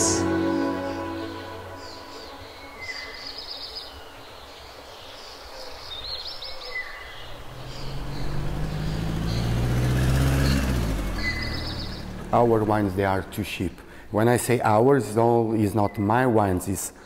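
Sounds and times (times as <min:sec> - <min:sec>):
birds chirping: 0:00.0 - 0:16.6
low engine hum: 0:07.3 - 0:13.6.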